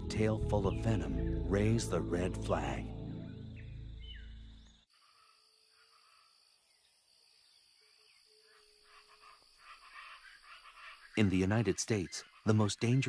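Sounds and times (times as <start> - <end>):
background music: 0.0 - 4.8
faint chirps: 0.0 - 13.0
high insect drone: 0.0 - 13.0.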